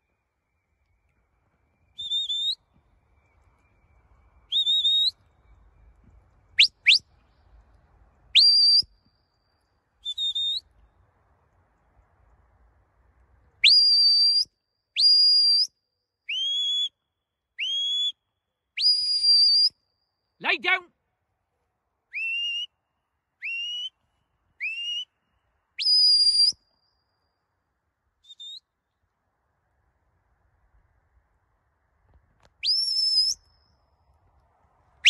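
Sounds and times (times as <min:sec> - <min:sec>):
high whistle blasts: 0:01.4 - 0:07.2, 0:08.3 - 0:09.0, 0:10.0 - 0:10.7, 0:13.6 - 0:17.0, 0:17.6 - 0:18.2, 0:18.8 - 0:19.8, 0:25.8 - 0:26.7, 0:32.6 - 0:33.8.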